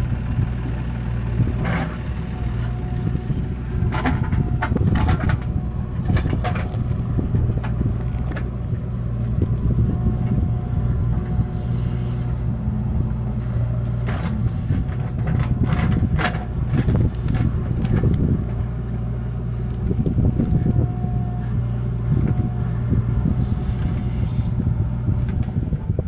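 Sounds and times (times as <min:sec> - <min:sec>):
diesel engine running under load: 0:00.0 - 0:26.0
backhoe bucket digging soil: 0:01.0 - 0:26.0
metal clanks and knocks: 0:03.8 - 0:08.5, 0:13.9 - 0:18.2.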